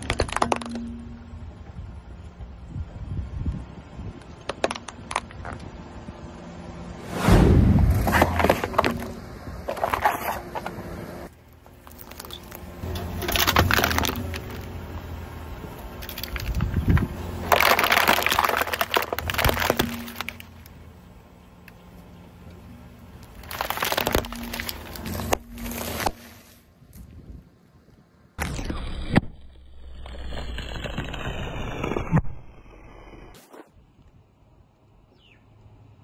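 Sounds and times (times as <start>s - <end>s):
tyre crushing drink can: 11.9s - 14.7s, 16.0s - 20.5s, 23.4s - 26.2s
tyre crushing plastic bag: 13.1s - 14.7s, 16.1s - 20.6s, 23.3s - 26.3s
tyre crunching snack bag: 23.3s - 26.4s.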